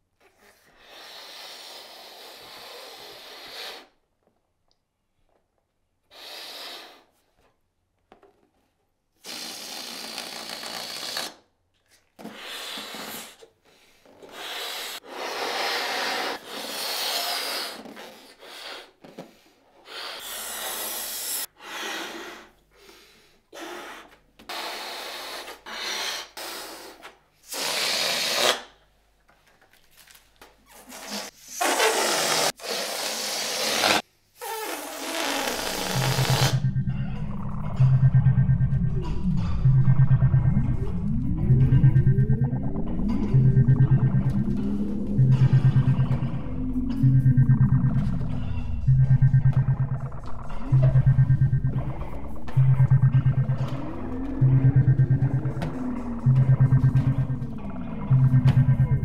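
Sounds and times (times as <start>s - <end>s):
person blowing up balloons: 0.4s - 4.0s, 6.1s - 7.2s, 9.2s - 11.4s, 12.2s - 22.6s, 23.5s - 28.7s, 30.9s - 36.6s.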